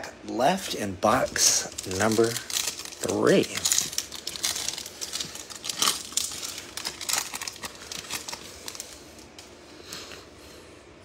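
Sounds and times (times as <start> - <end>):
foil wrapper tearing and crinkling: 1.0 - 9.4.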